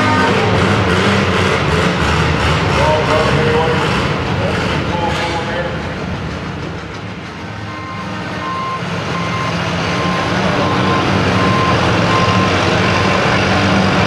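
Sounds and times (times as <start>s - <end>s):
tractor engine running: 0.0s - 14.0s
reversing alarm beeping: 7.7s - 13.1s.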